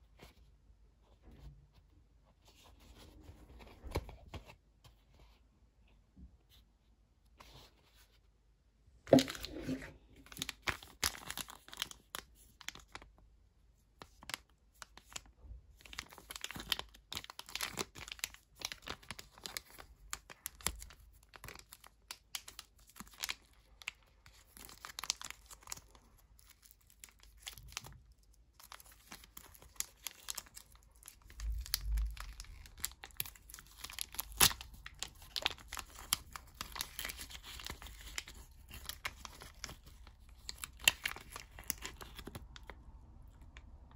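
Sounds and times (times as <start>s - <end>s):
plastic packet crinkling: 9.1s - 13.0s, 15.8s - 43.7s.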